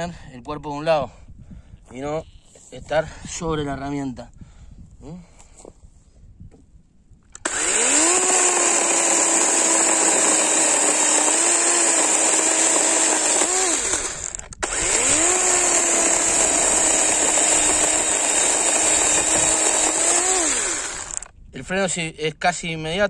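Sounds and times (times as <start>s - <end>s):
chainsaw cutting wood: 7.4s - 21.3s.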